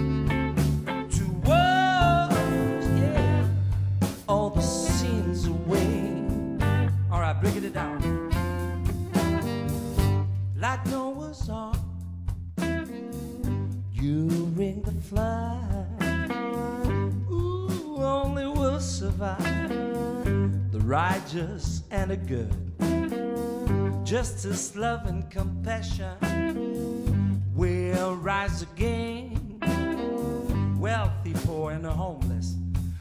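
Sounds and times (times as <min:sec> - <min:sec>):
saxophone melody: 0:00.0 - 0:03.7, 0:04.6 - 0:10.6, 0:12.7 - 0:13.9, 0:29.6 - 0:31.1
electric guitar: 0:00.0 - 0:10.6, 0:12.6 - 0:13.9, 0:15.9 - 0:17.9, 0:19.3 - 0:21.4, 0:22.7 - 0:24.8, 0:25.8 - 0:31.0
bass: 0:00.0 - 0:33.0
drums: 0:00.0 - 0:33.0.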